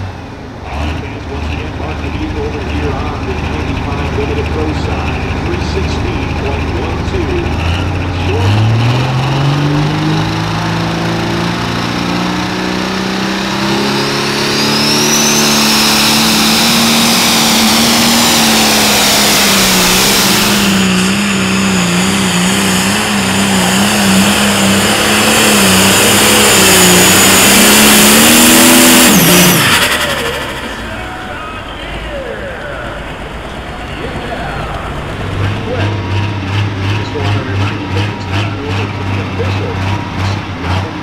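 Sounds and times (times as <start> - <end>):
diesel engine revving under load: 0.0 - 41.0
turbocharger high whistle: 12.0 - 36.5.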